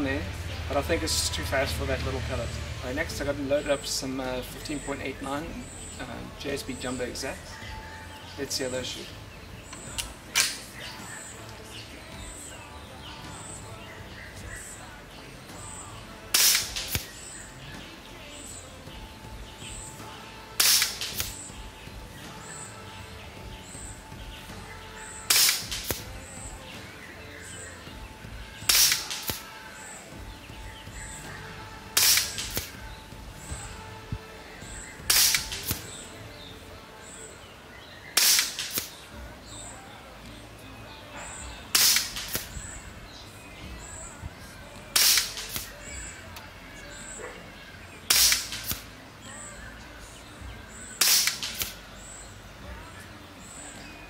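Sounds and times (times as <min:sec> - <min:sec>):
air rifle shot cracking: 0:16.3 - 0:17.1, 0:20.6 - 0:21.4, 0:25.3 - 0:26.2, 0:28.7 - 0:29.4, 0:32.0 - 0:32.8, 0:35.1 - 0:36.0, 0:38.2 - 0:39.0, 0:41.7 - 0:42.6, 0:45.0 - 0:45.8, 0:48.1 - 0:48.8, 0:51.0 - 0:51.8.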